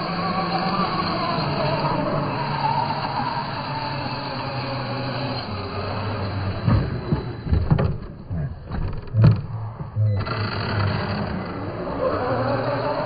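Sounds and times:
rc truck motor whirring: 0.0s - 13.0s
loud low thumps and knocks: 8.7s - 10.2s.

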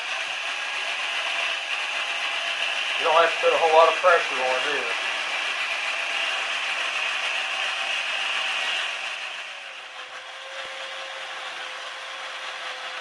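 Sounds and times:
electric drill motor whine: 0.0s - 13.0s.

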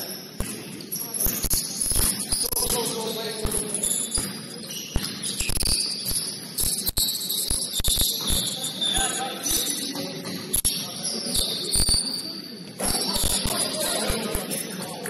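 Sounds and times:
basketball bouncing on court: 0.0s - 7.1s, 7.8s - 8.6s
sneaker squeaks: 0.0s - 15.0s
faint voices: 7.2s - 15.0s.

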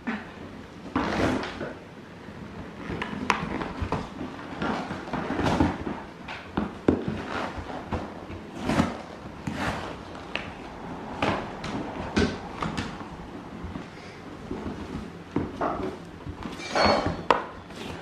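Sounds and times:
dog tearing cardboard: 1.0s - 1.7s, 6.8s - 10.4s.

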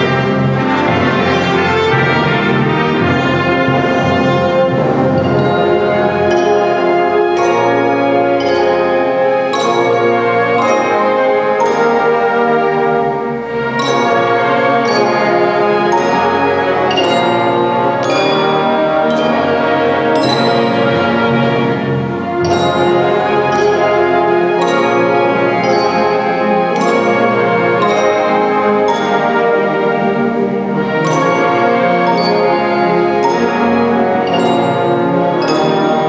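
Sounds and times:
struck percussion notes: 0.0s - 36.0s
wind band playing chords: 0.0s - 36.0s.

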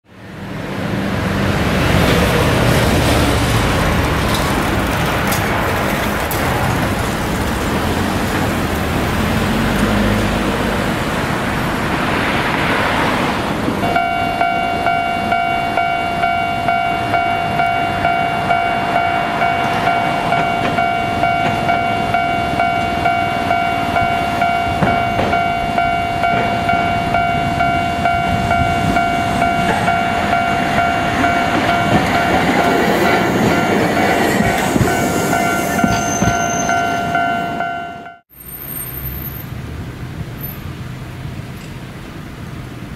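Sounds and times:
road traffic: 0.0s - 42.9s
tram running: 0.1s - 42.9s
pulsing warning signal: 13.8s - 38.2s.

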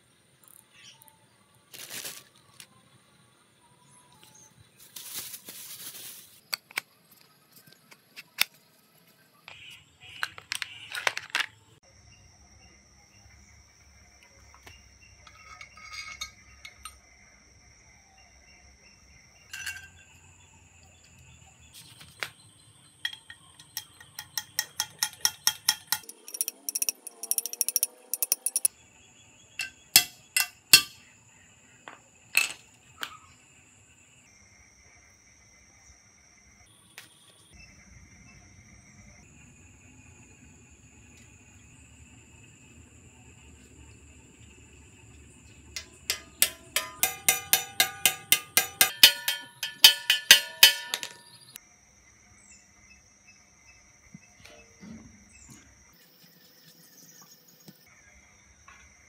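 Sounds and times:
plastic packaging crinkling: 1.7s - 2.6s, 4.8s - 6.4s
small metal parts clinking: 15.2s - 17.0s, 23.0s - 28.7s, 45.8s - 51.5s.

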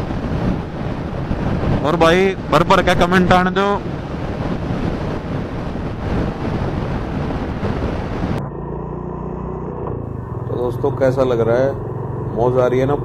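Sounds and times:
wind rushing over microphone: 0.0s - 13.0s
motorcycle engine running: 3.9s - 13.0s.

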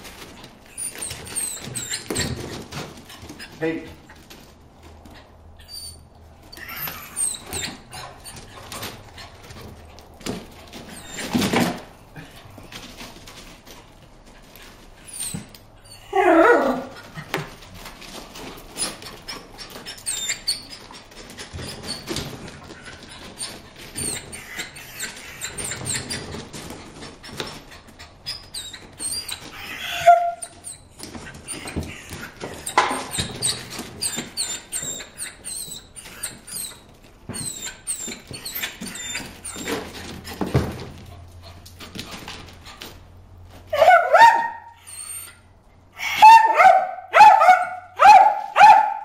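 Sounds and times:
dog whining: 0.4s - 2.5s, 5.1s - 9.7s, 10.7s - 12.3s, 15.0s - 17.6s, 18.8s - 21.0s, 21.6s - 26.4s, 27.2s - 40.0s, 43.7s - 49.0s
dog barking: 43.7s - 44.8s, 46.1s - 49.0s.

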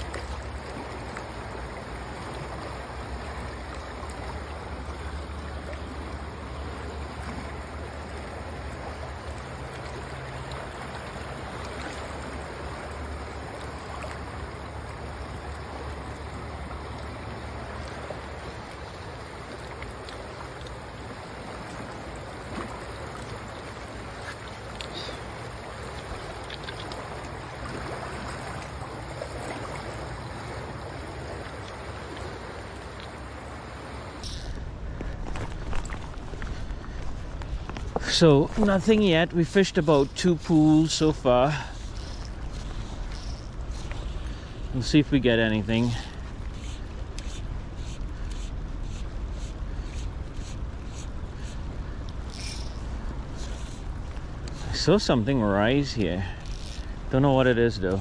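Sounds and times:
river water rushing: 0.0s - 34.8s.

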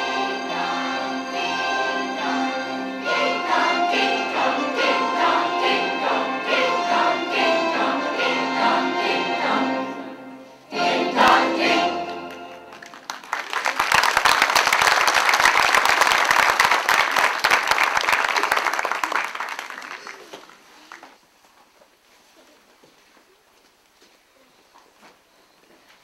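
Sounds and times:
mixed choir singing: 0.0s - 12.7s
audience applauding: 12.1s - 21.2s.

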